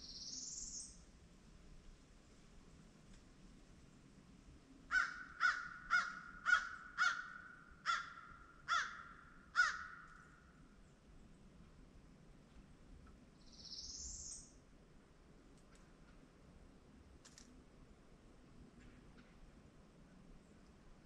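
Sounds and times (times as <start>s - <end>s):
crow cawing: 4.9s - 10.2s.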